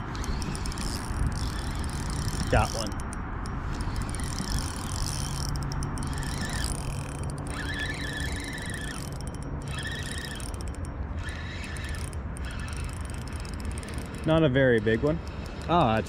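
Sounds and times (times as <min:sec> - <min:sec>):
fishing reel being cranked: 0:00.0 - 0:16.0
thin whine: 0:00.0 - 0:16.0.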